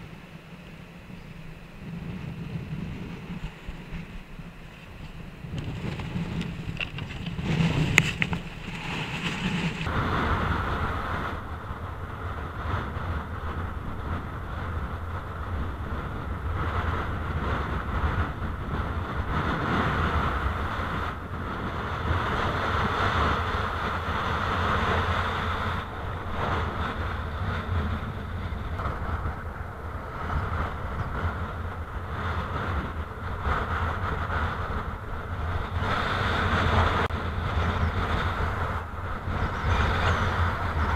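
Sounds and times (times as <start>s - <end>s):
wind buffeting microphone: 0.0s - 40.9s
surf washing: 1.6s - 11.3s.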